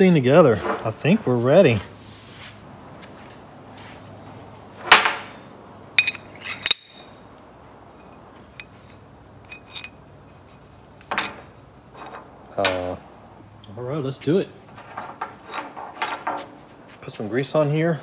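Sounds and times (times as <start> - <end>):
metal clinking and knocking: 6.0 - 7.2, 8.5 - 12.8, 14.7 - 16.6.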